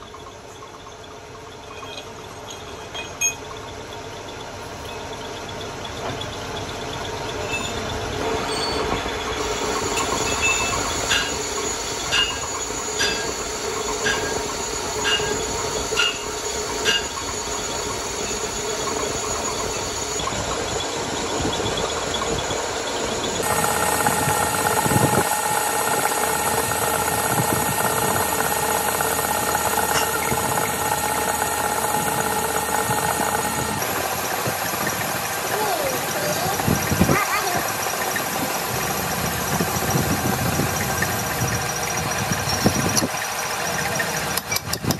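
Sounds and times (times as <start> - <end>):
metal lathe cutting steel: 0.1 - 44.9
sharp ringing ticks: 9.9 - 35.2.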